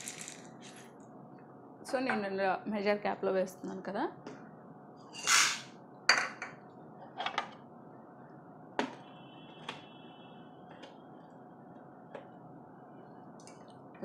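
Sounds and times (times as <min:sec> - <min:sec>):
dried chickpeas pouring rattle: 0:00.0 - 0:00.5.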